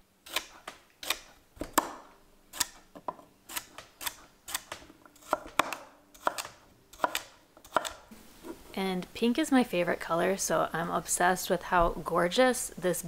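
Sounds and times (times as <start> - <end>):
knife chopping on board: 0.3 - 8.0.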